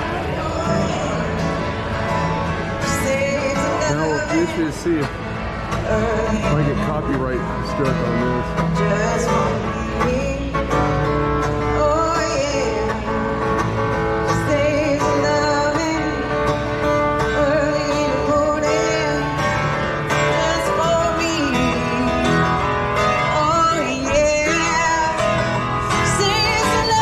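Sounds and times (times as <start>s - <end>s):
woman singing: 0.0s - 1.7s, 2.8s - 4.4s, 5.8s - 6.6s, 8.8s - 13.4s, 14.2s - 16.4s, 17.2s - 19.4s, 20.2s - 27.0s
acoustic guitar strumming: 0.0s - 27.0s.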